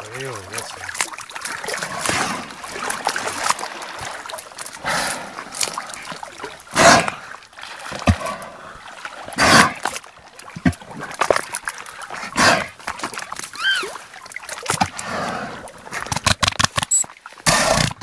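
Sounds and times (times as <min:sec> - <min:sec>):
water splashing: 0:00.0 - 0:18.0
whale blowhole hissing: 0:04.8 - 0:05.5, 0:17.5 - 0:17.9
low whale calls: 0:13.5 - 0:14.0.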